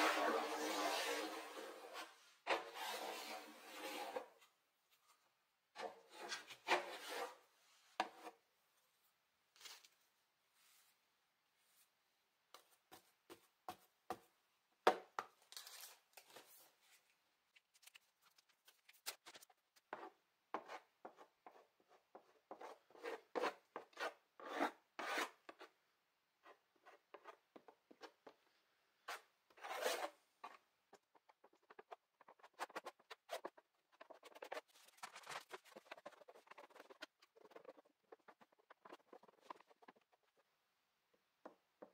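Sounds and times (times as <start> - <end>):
paint scraping on wooden panel: 31.2 - 40.5.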